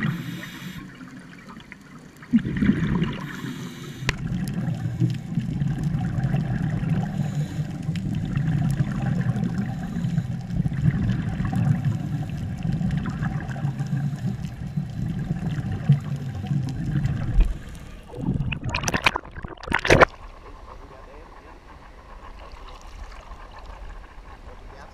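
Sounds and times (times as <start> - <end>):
water splashing: 0.0 - 9.9, 10.5 - 20.3
muffled underwater rumbling: 0.0 - 24.9.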